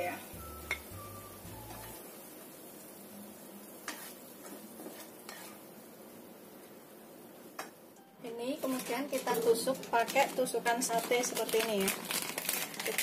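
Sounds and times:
faint sizzle: 0:00.0 - 0:13.0
spatula tapping pan: 0:00.6 - 0:01.0
plastic spatula scraping wok: 0:03.8 - 0:05.6.

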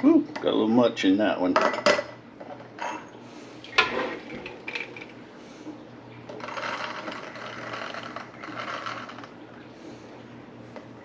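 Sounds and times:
peas rattling into glass jar: 0:06.4 - 0:09.3.

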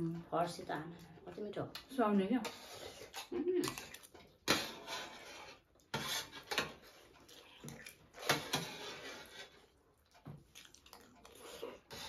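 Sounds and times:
spoon scraping a metal plate: 0:02.4 - 0:03.3, 0:04.4 - 0:07.1, 0:08.2 - 0:09.7
mouth eating noises: 0:10.0 - 0:11.9.

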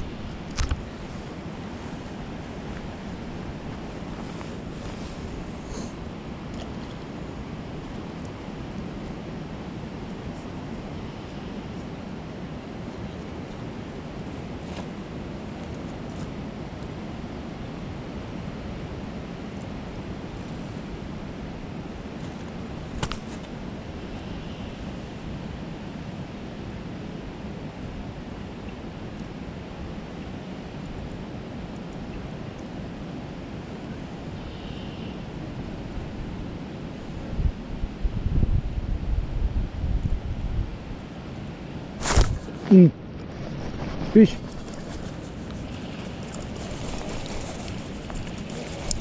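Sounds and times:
creek water rushing: 0:00.0 - 0:07.5, 0:42.0 - 0:49.0.

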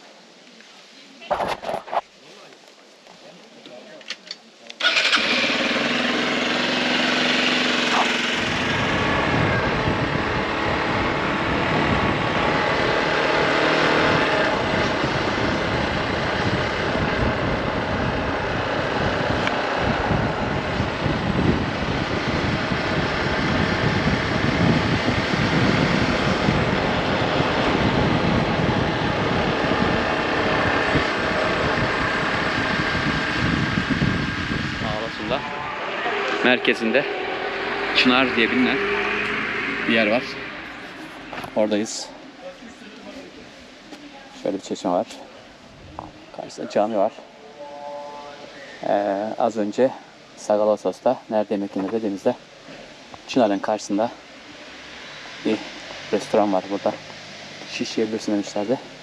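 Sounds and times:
wind and road rumble: 0:04.7 - 0:59.0
motorcycle engine: 0:04.8 - 0:42.4, 0:53.9 - 0:59.0.

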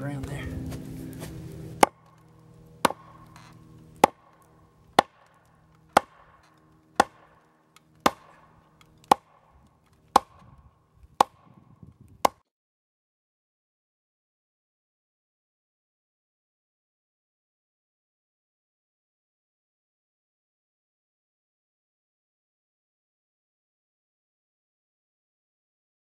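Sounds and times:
axe pounding fence post: 0:01.8 - 0:02.0, 0:02.8 - 0:10.6, 0:11.2 - 0:11.6.

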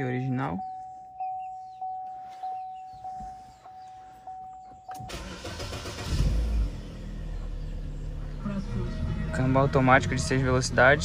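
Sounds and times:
car warning chime: 0:00.0 - 0:06.0
car engine starting and idling: 0:04.6 - 0:11.0.

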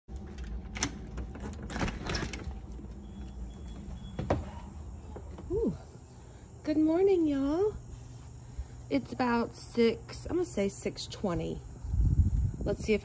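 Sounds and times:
door knob and latch rattling: 0:00.3 - 0:02.8.

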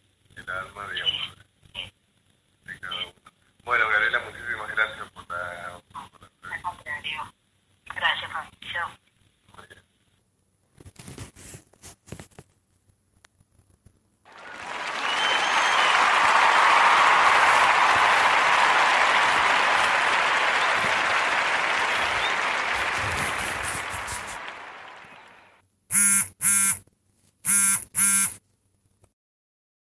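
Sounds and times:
crowd applause: 0:14.3 - 0:25.6.

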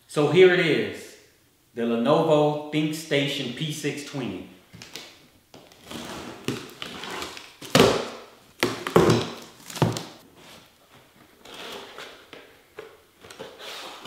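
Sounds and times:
cardboard rustling and knocking: 0:05.5 - 0:11.2.

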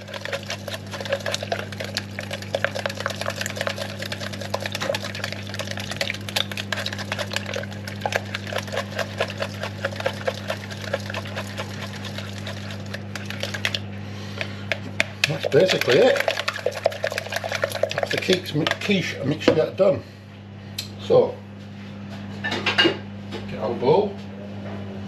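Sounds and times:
liquid sloshing: 0:00.0 - 0:19.2
steady low hum: 0:00.0 - 0:25.0.

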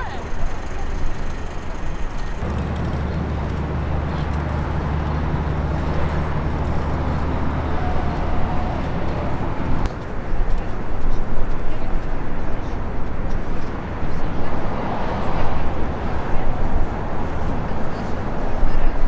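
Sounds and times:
vehicle engine humming: 0:00.0 - 0:11.0
city background noise: 0:00.0 - 0:19.0.

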